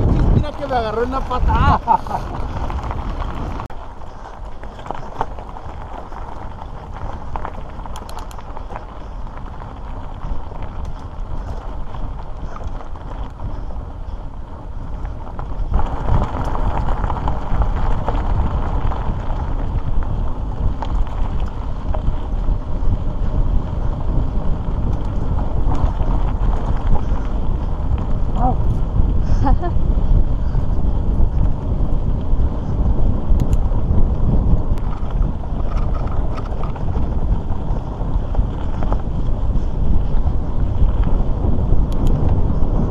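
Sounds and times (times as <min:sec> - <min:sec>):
bike tyres rolling over gravel: 0:00.0 - 0:42.9
wind on microphone: 0:00.0 - 0:42.9
small clicks and rattles: 0:02.6 - 0:13.7, 0:34.7 - 0:37.9.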